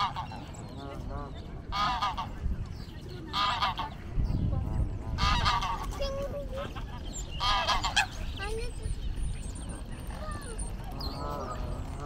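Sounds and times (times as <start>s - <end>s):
geese honking: 0.0s - 2.5s, 3.3s - 4.0s, 5.1s - 6.0s, 6.7s - 8.3s, 10.9s - 12.0s.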